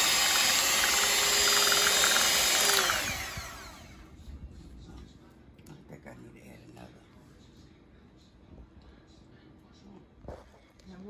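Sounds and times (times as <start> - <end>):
electric hand mixer whining: 0.0 - 4.0.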